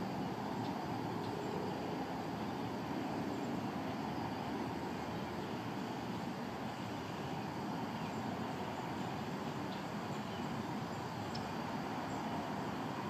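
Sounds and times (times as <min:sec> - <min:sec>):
low outdoor background rumble: 0:00.0 - 0:13.0.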